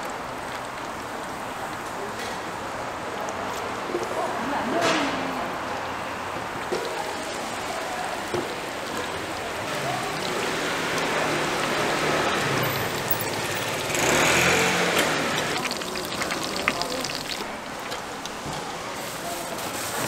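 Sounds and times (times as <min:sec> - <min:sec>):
oil sizzling in deep fryer: 0:06.6 - 0:20.0.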